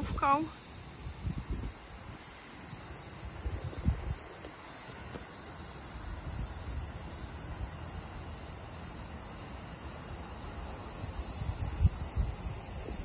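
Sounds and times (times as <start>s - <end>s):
cicadas singing: 0.0s - 13.0s
wind rumble on microphone: 1.0s - 4.5s, 11.0s - 13.0s.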